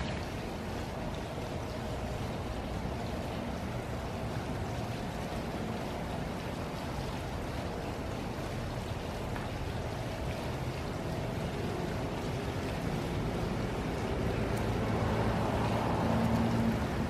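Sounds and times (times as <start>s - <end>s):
fountain water splashing: 0.0s - 17.0s.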